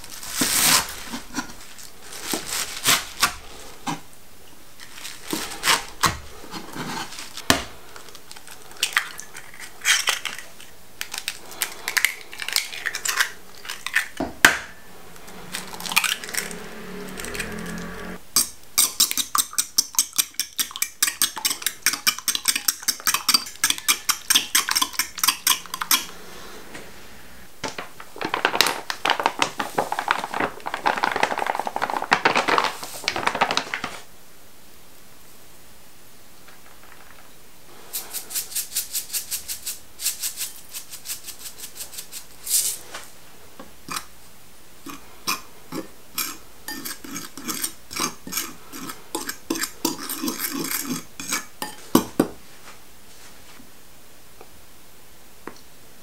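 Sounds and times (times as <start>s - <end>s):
fork beating eggs in bowl: 18.4s - 26.2s, 38.0s - 42.8s, 44.8s - 52.2s.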